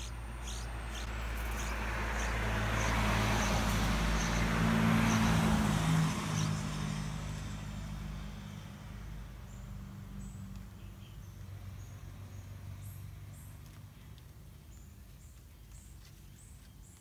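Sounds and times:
bird chick chirping: 0:00.0 - 0:04.5
motor vehicle passing: 0:00.0 - 0:15.8.

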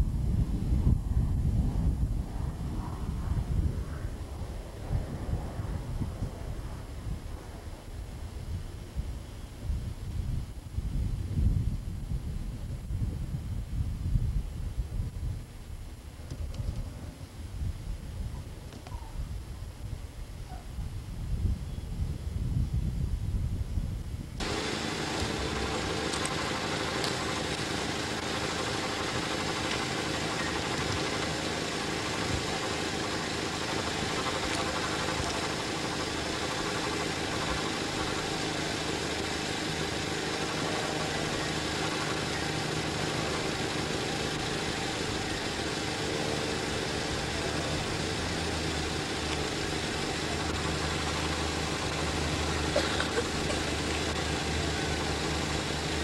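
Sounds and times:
engine running steadily: 0:24.4 - 0:56.0.

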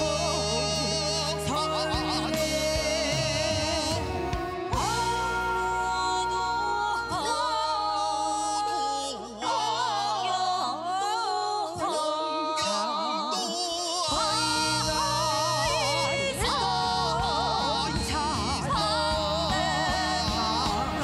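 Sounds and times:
low musical accompaniment: 0:00.0 - 0:08.5, 0:14.4 - 0:21.0
keyboard accompaniment: 0:00.0 - 0:10.5, 0:14.2 - 0:21.0
people singing together: 0:00.0 - 0:21.0.

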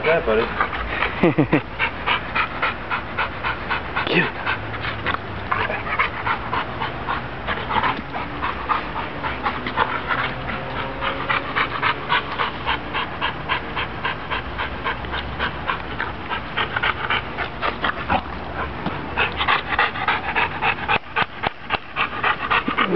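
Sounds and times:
dog panting hard: 0:00.0 - 0:22.9.

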